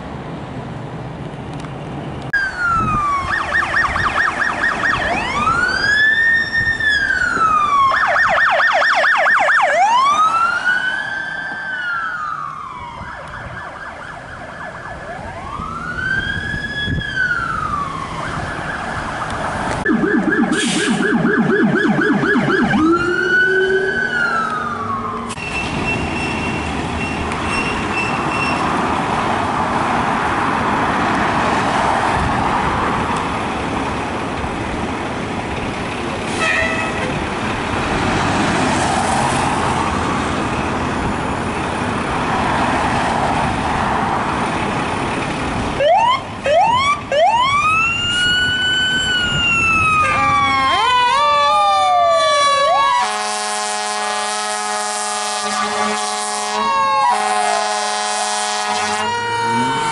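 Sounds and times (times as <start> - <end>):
heavy vehicle road noise: 0.0 - 59.9
electronic siren whoops: 2.4 - 25.3, 45.8 - 59.9
fast warbling siren yelp: 2.4 - 25.3, 45.8 - 53.3, 54.7 - 59.9
siren wail: 2.4 - 25.4, 45.8 - 59.9.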